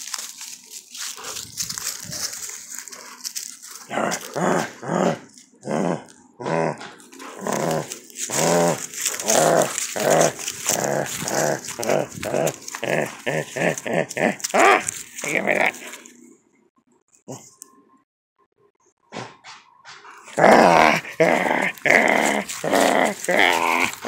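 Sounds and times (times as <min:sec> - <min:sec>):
puppy growling: 0:01.2 - 0:16.1, 0:20.2 - 0:24.0.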